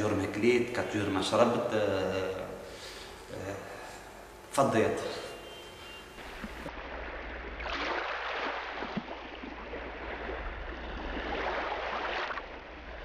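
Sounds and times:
low steady hum: 0:00.0 - 0:13.0
sea waves washing: 0:06.2 - 0:13.0.

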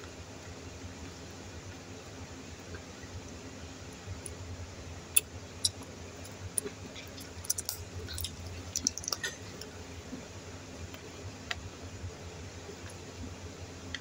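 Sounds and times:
wet chewing and mouth clicks: 0:05.1 - 0:09.8.

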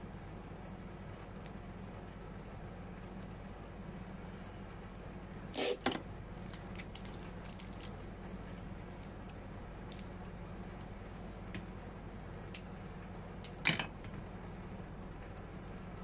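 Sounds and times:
steady low hum: 0:00.0 - 0:16.0
hands rustling flower sprigs: 0:06.4 - 0:10.9.

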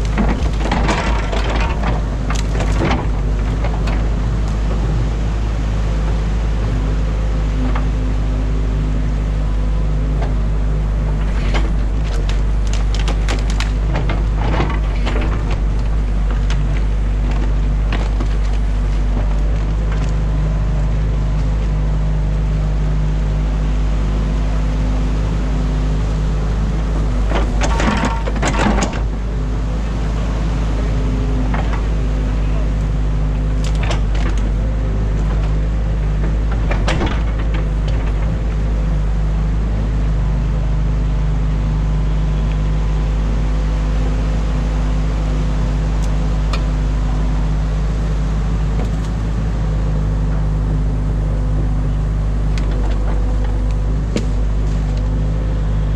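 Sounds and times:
excavator diesel engine running: 0:00.0 - 0:55.9
sticks snapping and knocking: 0:11.6 - 0:18.6.

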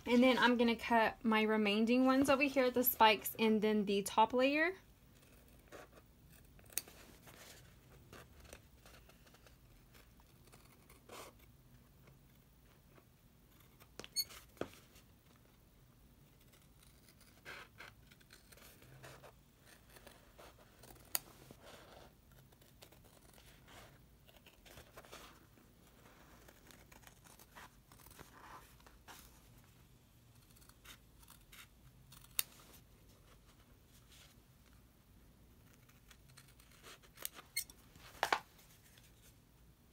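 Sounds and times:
scissors snipping material: 0:30.4 - 0:32.6.

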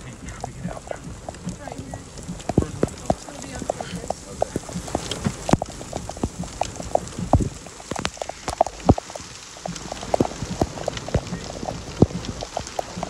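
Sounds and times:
rain hiss: 0:00.0 - 0:13.0
rain knocking on vehicle: 0:00.0 - 0:13.0.

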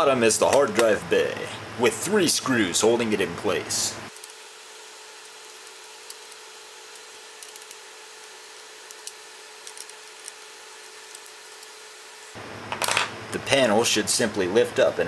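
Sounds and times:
screwdriver ticks and scrapes: 0:05.2 - 0:10.4.

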